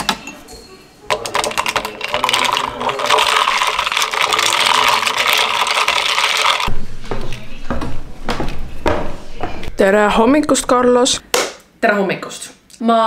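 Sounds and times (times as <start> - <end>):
ice cubes clinking in glass jar: 1.1 - 6.7.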